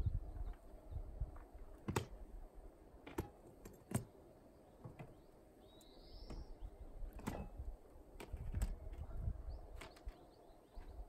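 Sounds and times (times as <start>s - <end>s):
faint outdoor ambience: 0.0s - 11.0s
small bird chirp: 4.6s - 6.9s.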